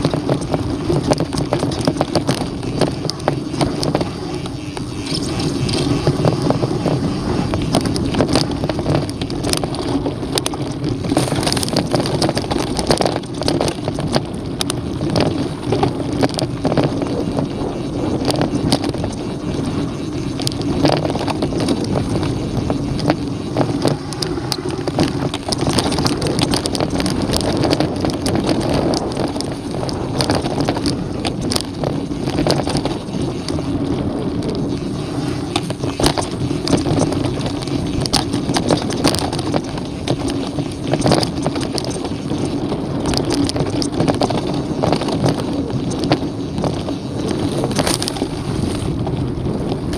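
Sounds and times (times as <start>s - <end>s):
bike rattling with sharp clicks: 0.0s - 49.9s
bike tyres rolling over dirt: 0.0s - 49.9s
wind buffeting microphone: 0.0s - 49.9s.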